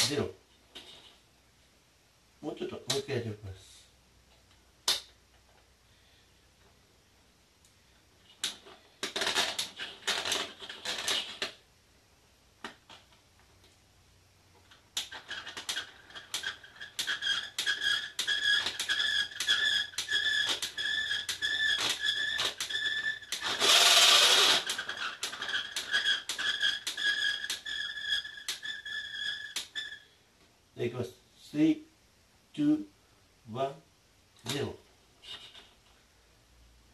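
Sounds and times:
winding crank clicking: 0:15.0 - 0:29.8
squeak: 0:15.1 - 0:30.2, 0:35.2 - 0:35.8
rasping burst: 0:21.2 - 0:28.8.

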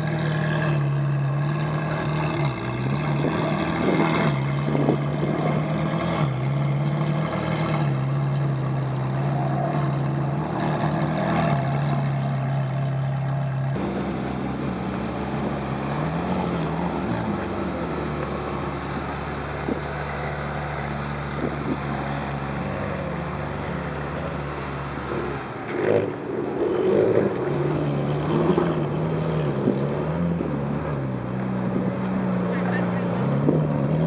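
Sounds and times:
car engine idling: 0:11.6 - 0:25.6.

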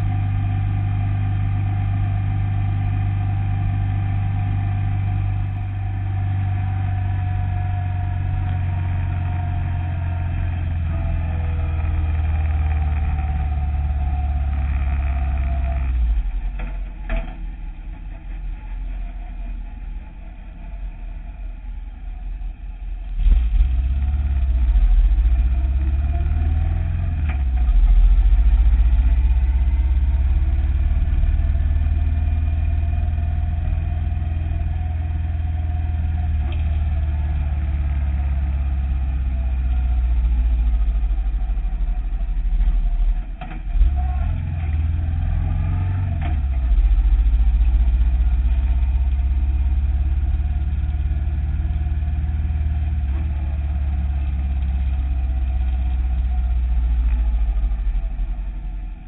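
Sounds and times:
motorcycle engine rumble: 0:00.0 - 0:59.0.

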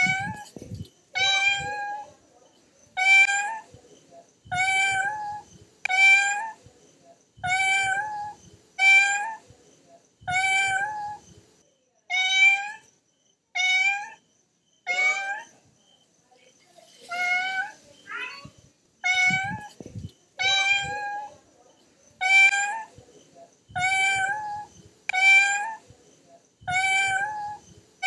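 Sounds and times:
cat meowing: 0:00.0 - 0:00.5, 0:01.2 - 0:02.1, 0:03.0 - 0:03.6, 0:04.5 - 0:06.6, 0:07.4 - 0:09.4, 0:10.3 - 0:11.2, 0:12.1 - 0:12.9, 0:13.6 - 0:14.2, 0:14.9 - 0:15.5, 0:17.1 - 0:19.8, 0:20.4 - 0:21.3, 0:22.2 - 0:22.9, 0:23.8 - 0:25.8, 0:26.7 - 0:27.6.

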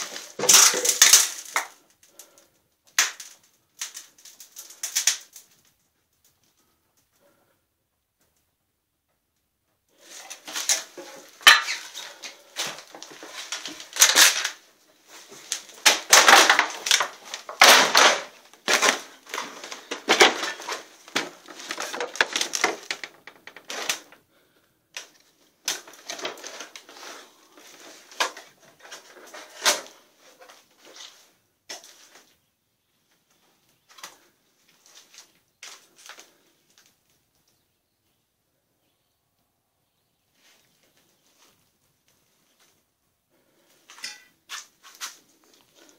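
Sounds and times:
footsteps crunching on debris: 0:00.0 - 0:01.9, 0:10.0 - 0:24.2, 0:25.0 - 0:32.4, 0:33.2 - 0:37.0, 0:43.6 - 0:45.9.

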